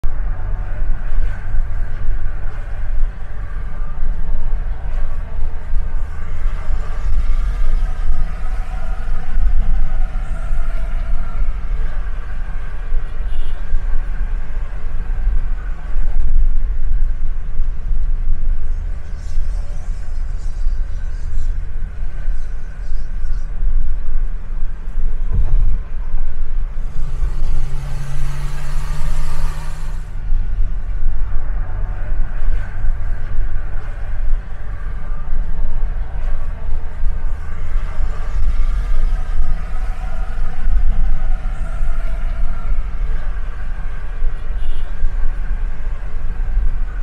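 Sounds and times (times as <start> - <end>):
car driving rumble: 0.0 - 47.0
louder hum with hiss: 27.0 - 30.1.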